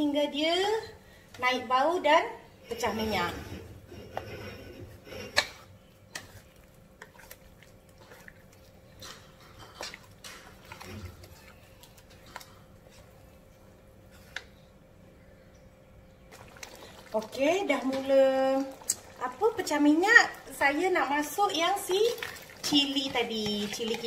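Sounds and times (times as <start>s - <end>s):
spatula scraping a wok: 2.8s - 7.3s.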